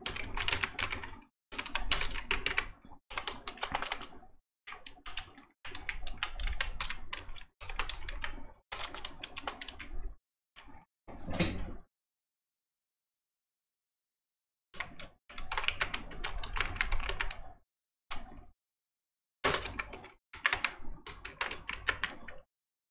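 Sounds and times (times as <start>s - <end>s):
typing on computer keyboard: 0.0s - 10.0s, 14.8s - 18.4s, 19.4s - 22.4s.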